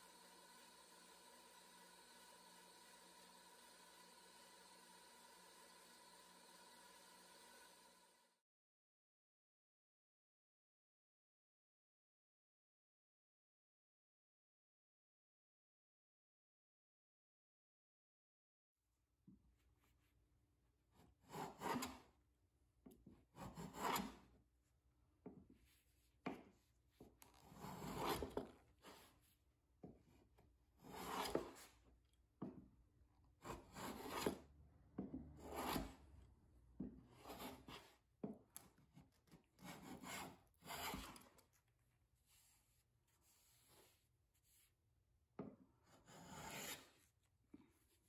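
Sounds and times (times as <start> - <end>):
hand plane rasping strokes: 0.0 - 8.2, 21.2 - 22.0, 23.4 - 24.3, 27.4 - 29.1, 30.8 - 31.7, 33.4 - 34.5, 35.3 - 36.1, 37.0 - 38.0, 39.6 - 41.4, 45.9 - 47.0.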